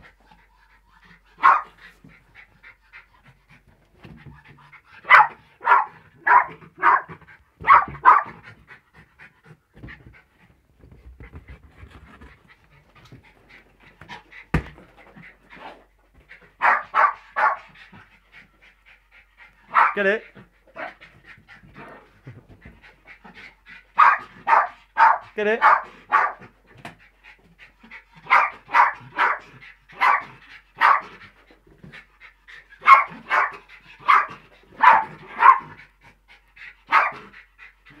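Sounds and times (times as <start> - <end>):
dog panting rapidly: 0.0 - 38.0
dog barking: 1.4 - 1.8, 5.0 - 8.4, 16.6 - 17.7, 19.7 - 20.0, 24.0 - 26.4, 28.3 - 29.4, 30.0 - 31.1, 32.8 - 35.7, 36.9 - 37.2.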